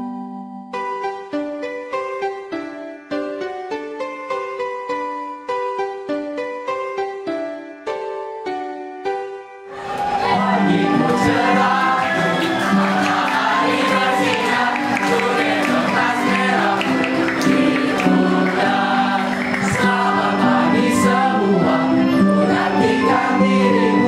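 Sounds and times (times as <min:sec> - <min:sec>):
instrumental backing music: 0:00.0 - 0:24.0
children singing together: 0:09.7 - 0:24.0.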